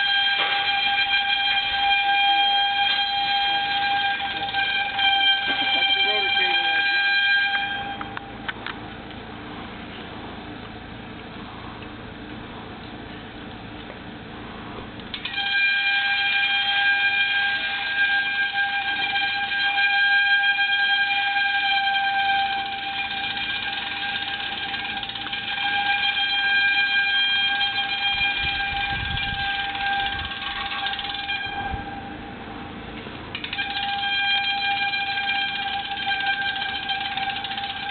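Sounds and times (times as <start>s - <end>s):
buzzy morse code tone: 0.0s - 8.4s, 15.3s - 32.4s, 33.4s - 37.9s.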